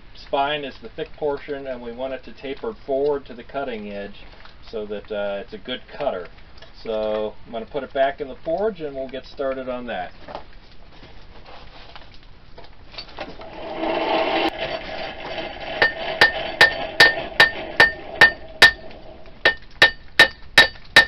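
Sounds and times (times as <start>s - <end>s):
hammer ringing on anvil: 15.8s - 21.0s.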